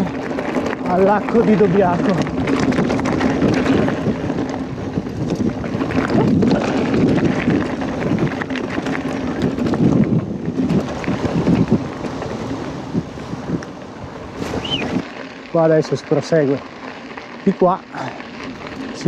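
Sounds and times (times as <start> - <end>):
wind rushing over microphone: 0.0 - 16.7
bicycle tyre noise: 0.0 - 19.0
bike rattles and knocks: 0.0 - 19.0.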